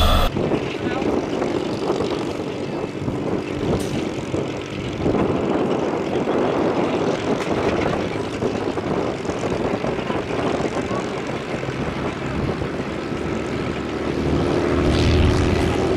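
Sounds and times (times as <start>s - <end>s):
aircraft engine rumbling: 0.0s - 0.3s.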